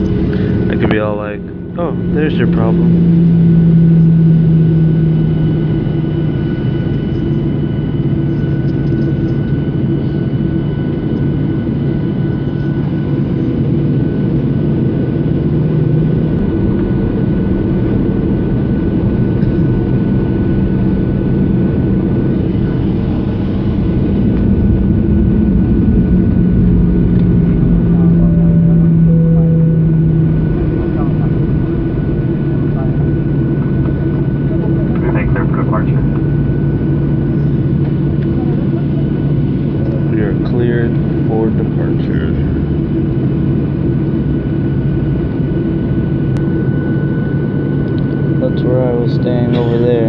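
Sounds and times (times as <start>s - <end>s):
jet engine drone in cabin: 0.0s - 50.0s
thin whining tones: 27.9s - 31.0s.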